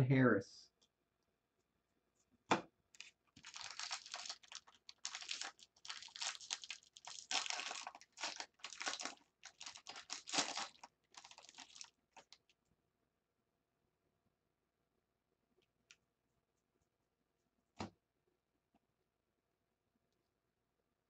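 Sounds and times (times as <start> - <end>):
foil wrapper crinkling: 3.0 - 12.5.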